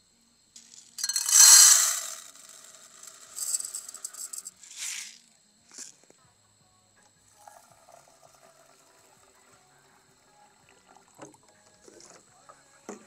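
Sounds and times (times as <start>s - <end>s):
dry rice rattling in a pot: 0.6s - 6.1s.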